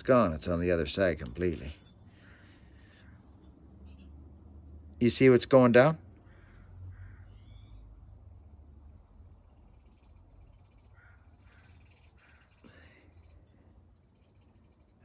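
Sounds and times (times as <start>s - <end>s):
low background hum: 0.0s - 15.0s
faint animal calls: 6.0s - 15.0s.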